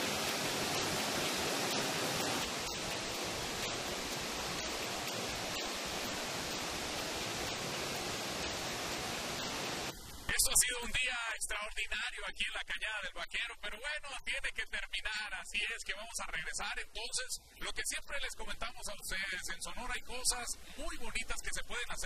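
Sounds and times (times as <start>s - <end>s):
water falling down rock face: 0.0s - 10.6s.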